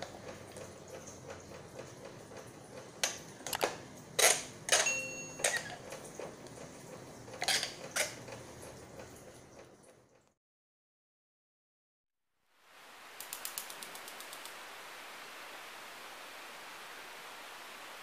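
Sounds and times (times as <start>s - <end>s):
bright ringing chime: 4.8s - 5.7s
faint hiss: 12.4s - 18.0s
sharp clicks: 13.2s - 14.6s.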